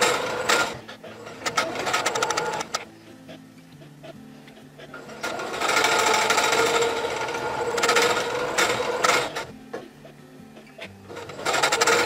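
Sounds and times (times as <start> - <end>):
sewing machine stitching: 0.0 - 2.9, 5.0 - 9.5, 11.1 - 12.0.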